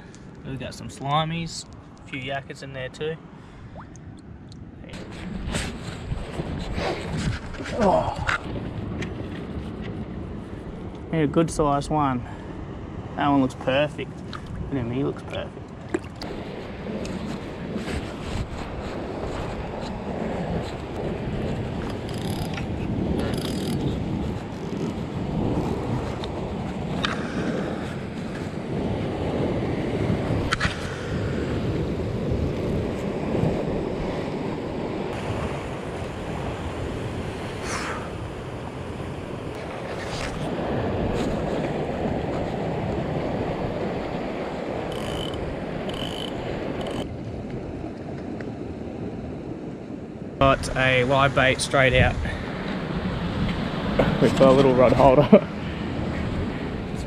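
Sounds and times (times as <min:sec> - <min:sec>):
sea surf: 0:00.0 - 0:57.0
wind buffeting microphone: 0:03.8 - 0:57.0
fishing reel ratcheting: 0:44.9 - 0:47.0.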